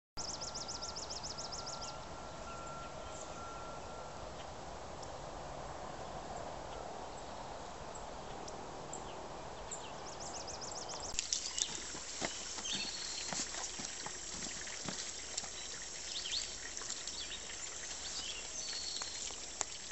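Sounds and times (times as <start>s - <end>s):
pigs feeding at a trough: 11.2s - 19.9s.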